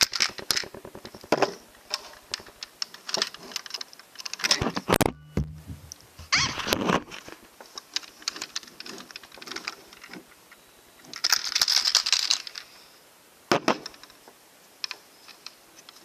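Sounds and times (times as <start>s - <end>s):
plastic bricks clicking and rattling: 0.0s - 4.8s, 11.1s - 12.7s
sharp knock: 5.0s - 6.3s.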